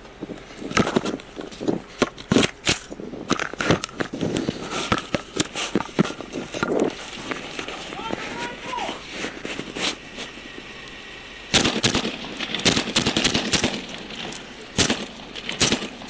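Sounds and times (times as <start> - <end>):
microphone handling noise: 0.1 - 8.4.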